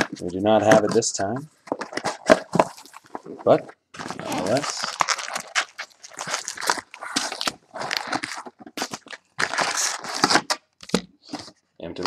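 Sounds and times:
foil packs rustling: 0:01.7 - 0:10.6.

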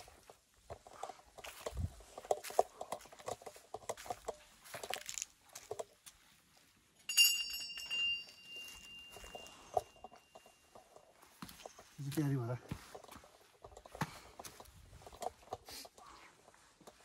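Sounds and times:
temple bell ringing: 0:07.1 - 0:09.7.

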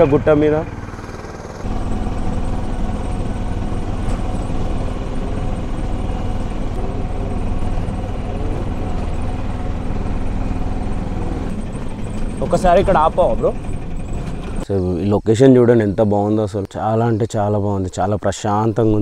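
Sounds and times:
auto-rickshaw engine running: 0:00.0 - 0:14.7.

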